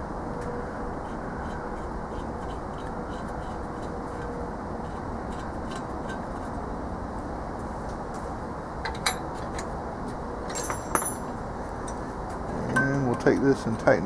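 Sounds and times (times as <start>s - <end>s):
steady background hum: 0.0s - 14.0s
metallic wrench clink: 10.5s - 11.4s.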